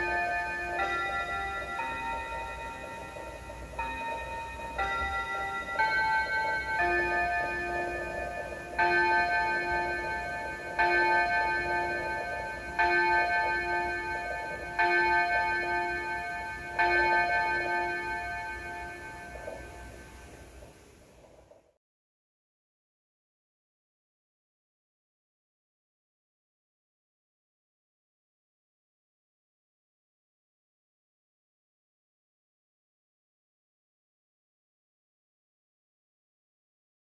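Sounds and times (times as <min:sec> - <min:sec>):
wall clock chime tune: 0:00.0 - 0:20.6
clock striking hours: 0:00.0 - 0:20.8.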